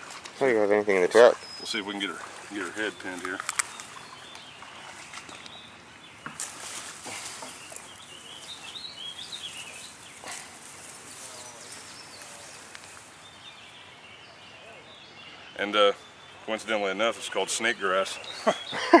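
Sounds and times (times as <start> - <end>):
bird singing: 0.8 - 19.0
grass and leaf litter rustling: 1.8 - 14.2.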